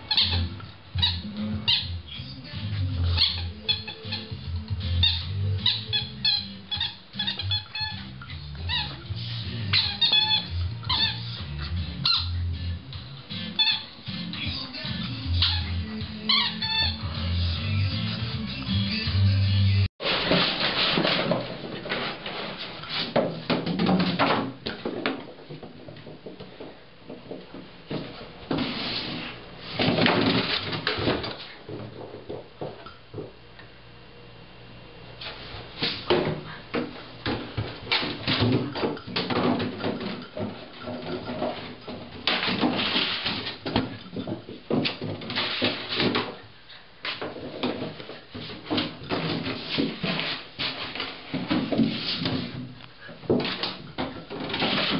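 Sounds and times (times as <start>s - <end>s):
plastic scraping and knocking on floor: 20.0s - 33.3s, 35.9s - 46.4s, 47.1s - 54.9s.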